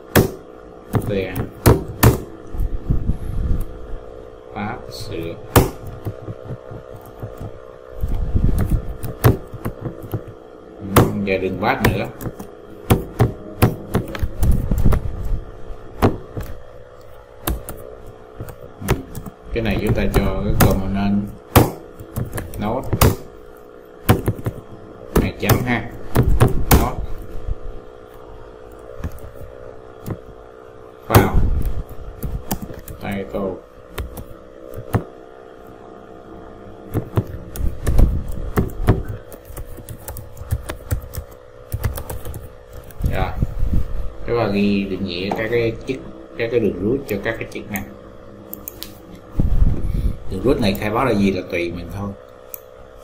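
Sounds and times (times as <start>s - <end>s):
faint steady hum: 0.0s - 53.0s
keyboard keystrokes: 37.0s - 43.0s.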